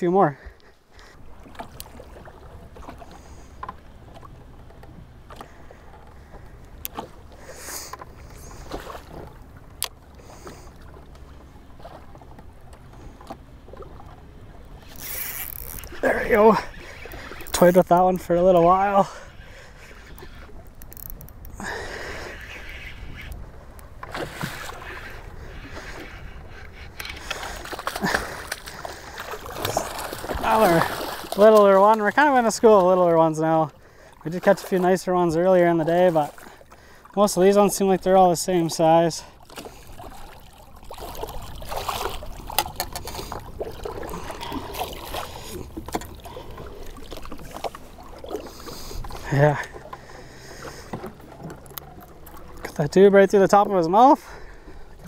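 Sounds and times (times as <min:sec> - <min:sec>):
low wind rumble: 0:00.0 - 0:31.4
water splashing: 0:00.3 - 0:55.0
sharp clicks: 0:20.6 - 0:21.5.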